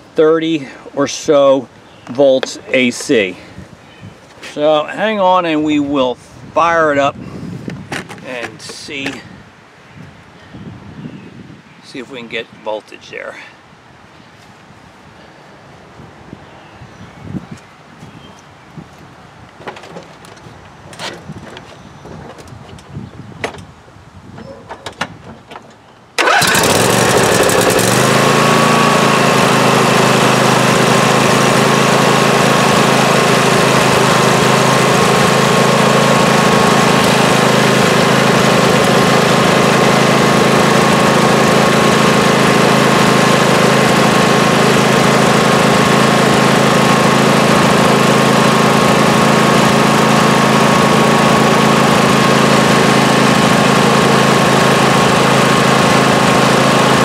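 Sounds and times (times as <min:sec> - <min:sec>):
lawn tractor engine running: 0:26.2 - 0:57.0.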